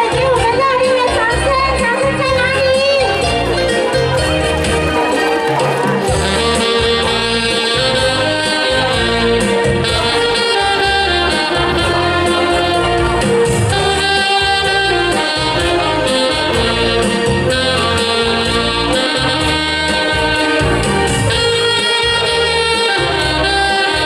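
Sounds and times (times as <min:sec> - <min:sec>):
bass line: 0:00.0 - 0:24.0
saxophones playing in unison: 0:00.0 - 0:24.0
steady beat: 0:01.3 - 0:24.0.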